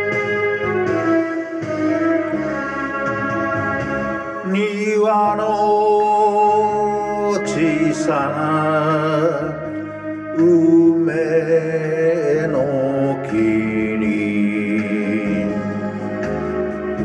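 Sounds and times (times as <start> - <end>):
backing music: 0.0 - 17.0
vocal melody with vibrato: 0.0 - 17.0.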